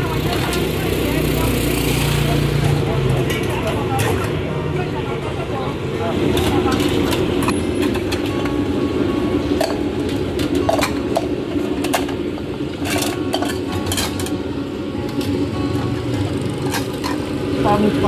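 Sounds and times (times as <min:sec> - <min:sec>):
bowls and utensils clinking: 0:06.3 - 0:08.6, 0:09.5 - 0:15.4, 0:16.1 - 0:17.6.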